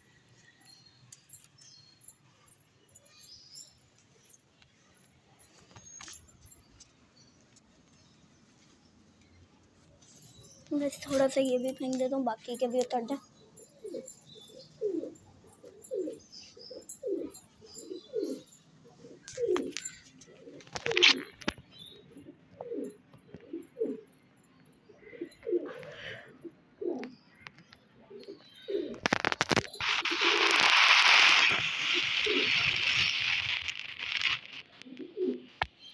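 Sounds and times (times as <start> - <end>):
pigeons cooing: 13.7 - 21.4, 22.0 - 24.1, 25.0 - 27.2, 28.1 - 33.3, 34.8 - 35.6.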